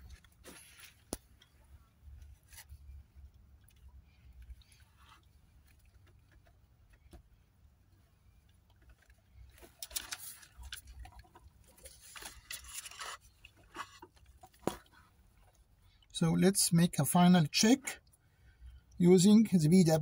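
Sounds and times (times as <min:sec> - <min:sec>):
hands rustling wiring: 0:08.4 - 0:15.6.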